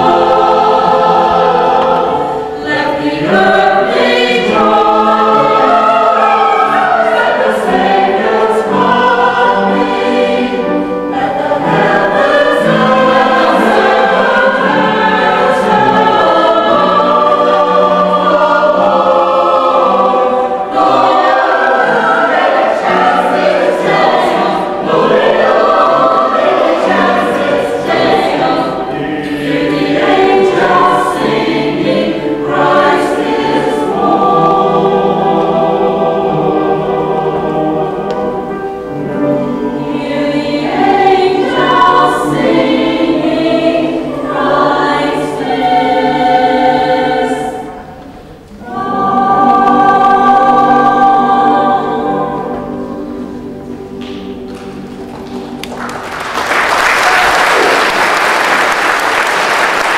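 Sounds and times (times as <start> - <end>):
choir singing a carol: 0.0 - 59.9.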